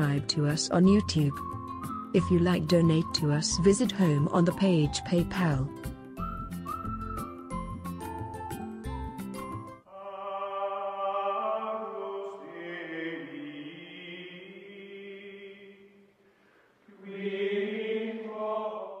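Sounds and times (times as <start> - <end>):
choir-like chant: 9.9 - 16.0, 16.9 - 19.0.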